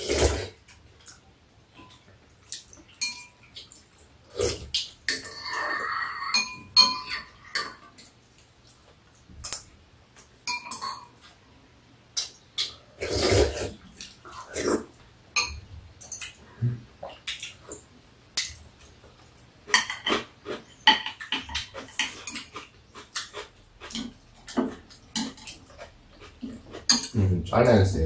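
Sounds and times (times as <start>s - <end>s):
chewing and slurping: 12.2s - 15.0s, 19.2s - 27.2s
utensils clicking against bowls: 20.9s - 27.2s.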